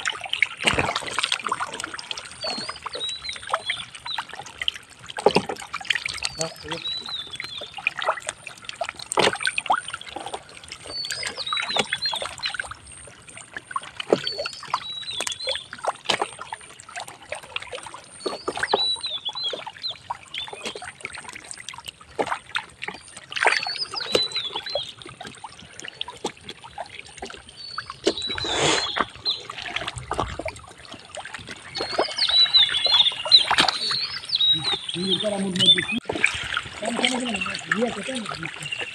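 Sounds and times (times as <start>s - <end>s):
wet mud squelching and splashing: 0.0s - 38.9s
bird chirping: 31.7s - 36.1s.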